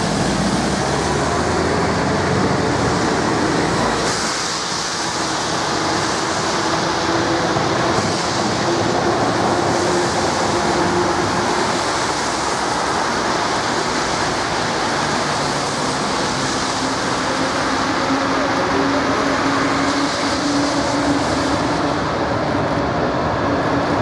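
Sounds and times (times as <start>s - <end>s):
car tyres hissing on wet road: 0.0s - 24.0s
passing tram hum: 0.0s - 24.0s.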